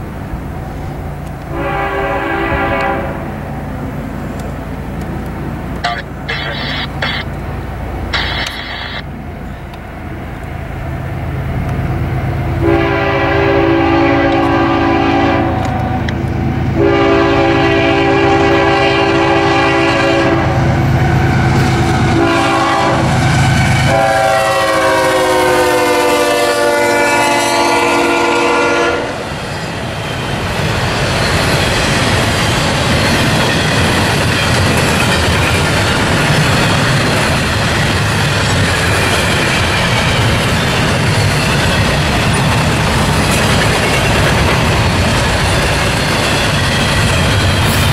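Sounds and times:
freight cars rumbling: 0.0s - 24.1s, 29.2s - 47.9s
locomotive engines droning: 0.0s - 47.9s
locomotive air horn: 1.5s - 3.3s, 12.6s - 16.1s, 16.8s - 20.6s, 21.3s - 29.2s
wheel clatter on rail joints: 29.4s - 47.9s.

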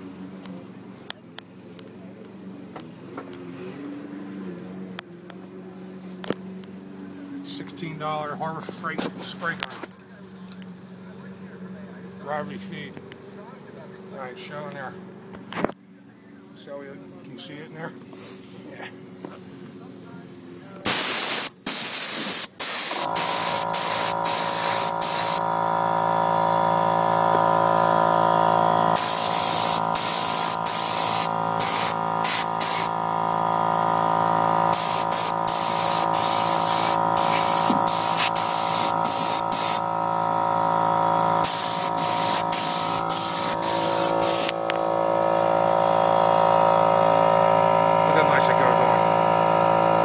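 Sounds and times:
spray gun hissing: 20.8s - 25.5s, 28.8s - 33.0s, 34.6s - 39.9s, 41.4s - 45.6s
steady machine hum: 22.4s - 50.0s.

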